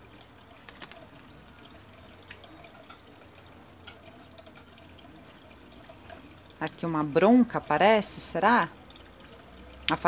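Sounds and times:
cards being handled: 0:00.6 - 0:01.2.

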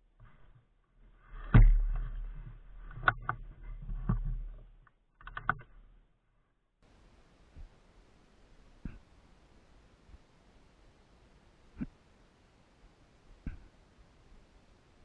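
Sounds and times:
sharp clicks: 0:05.2 - 0:05.8.

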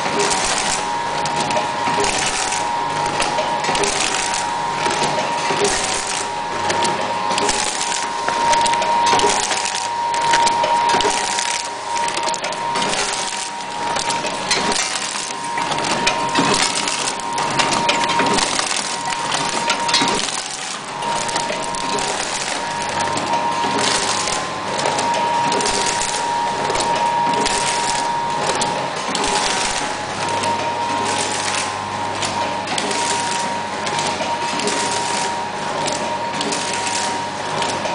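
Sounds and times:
packaging machine clattering: 0:00.0 - 0:37.9.

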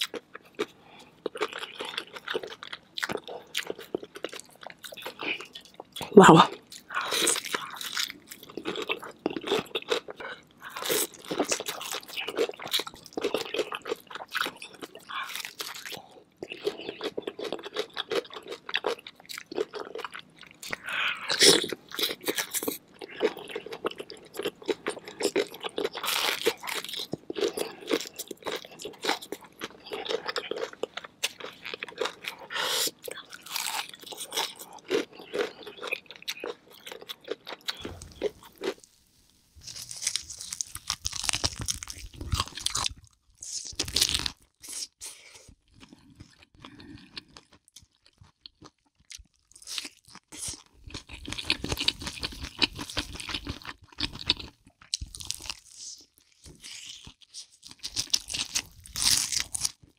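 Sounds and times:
wet chewing: 0:00.0 - 0:39.0, 0:39.6 - 0:44.9
crunchy bites: 0:39.6 - 0:44.6, 0:48.6 - 0:59.9.

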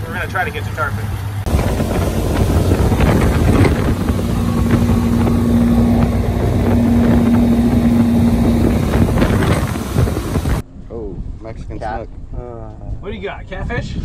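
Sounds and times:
motorboat engine running: 0:00.0 - 0:10.6
steady hum: 0:01.3 - 0:11.5
wind on microphone: 0:01.4 - 0:14.0.

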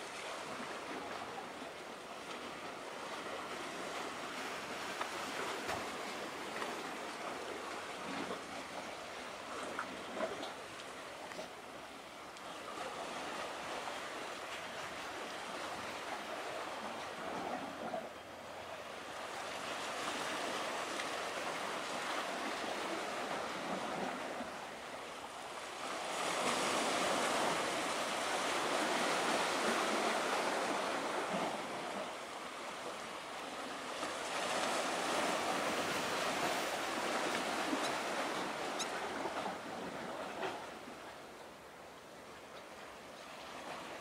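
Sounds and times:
waves washing against concrete: 0:00.0 - 0:11.6, 0:25.5 - 0:41.1.

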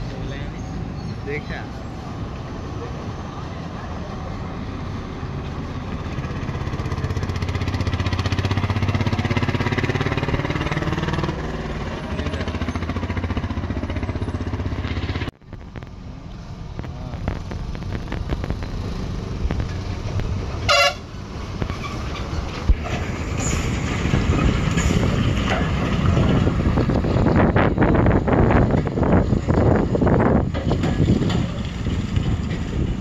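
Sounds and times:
truck diesel engine labouring: 0:00.0 - 0:33.0
truck engine rumbling: 0:00.0 - 0:33.0
truck horn: 0:20.6 - 0:21.2.

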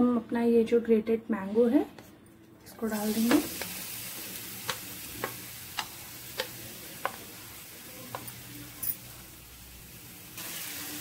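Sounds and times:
faint sizzle of frying: 0:02.8 - 0:11.0
wooden spatula tapping on a plate: 0:04.6 - 0:07.3, 0:08.0 - 0:08.4.

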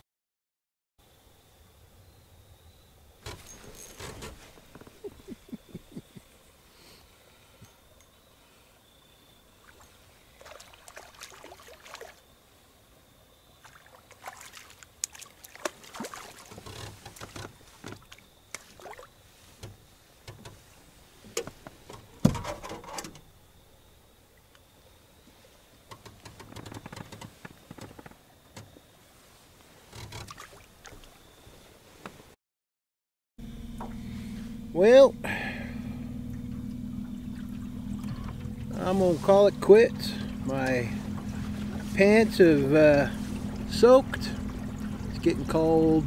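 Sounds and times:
knocks and clatter in boat: 0:03.2 - 0:06.2, 0:15.6 - 0:23.3, 0:25.9 - 0:28.9, 0:29.9 - 0:31.1, 0:36.1 - 0:46.0.

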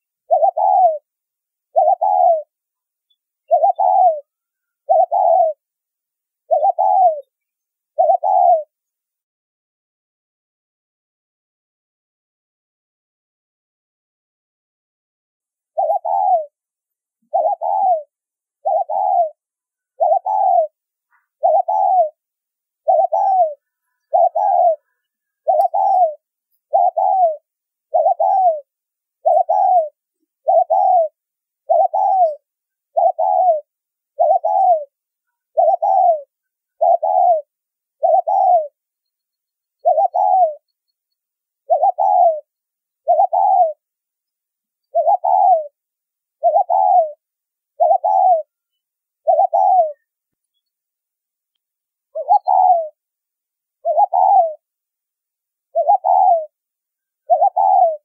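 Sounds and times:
dove cooing: 0:00.0 - 0:01.1, 0:01.7 - 0:02.5, 0:03.4 - 0:05.6, 0:06.4 - 0:07.3, 0:07.9 - 0:08.8, 0:15.7 - 0:16.6, 0:17.3 - 0:22.2, 0:22.8 - 0:38.8, 0:39.8 - 0:40.7, 0:41.6 - 0:43.8, 0:44.9 - 0:45.8, 0:46.4 - 0:47.2, 0:47.8 - 0:48.6, 0:49.2 - 0:50.1, 0:52.1 - 0:53.0, 0:53.8 - 0:54.7, 0:55.7 - 0:56.6, 0:57.2 - 0:58.0.

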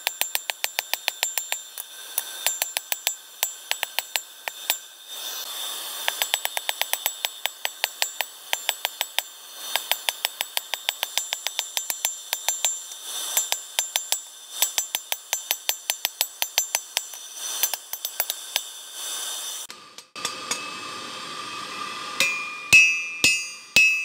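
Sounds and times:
hammer ringing on anvil: 0:20.0 - 0:20.8, 0:22.2 - 0:24.0.

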